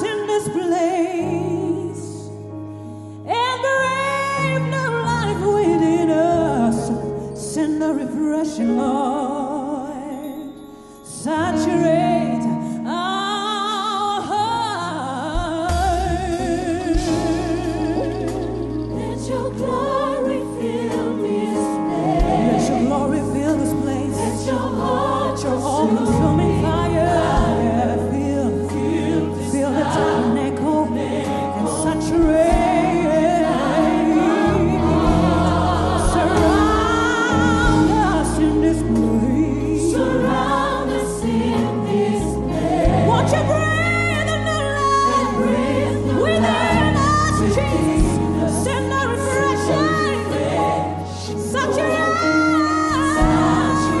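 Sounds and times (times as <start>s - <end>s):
low bass notes: 15.4s - 21.0s, 31.9s - 48.9s
band playing: 15.6s - 54.0s
choir singing: 15.8s - 54.0s.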